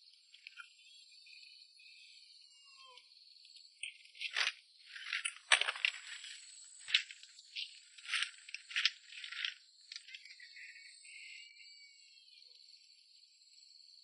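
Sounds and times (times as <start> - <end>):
sticks rattling and scraping: 4.2 - 10.4.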